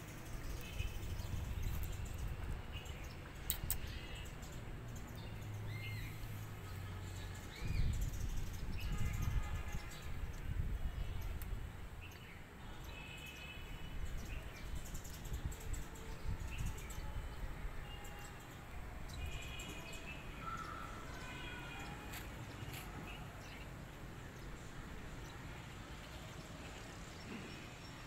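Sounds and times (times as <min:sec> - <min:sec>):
small birds chirping: 0:00.0 - 0:17.1
faint clicks: 0:03.4 - 0:03.9.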